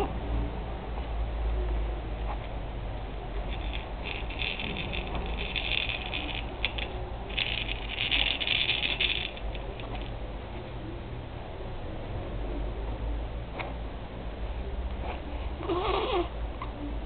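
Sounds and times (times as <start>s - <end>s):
toy rattle shaken: 3.5s - 10.2s.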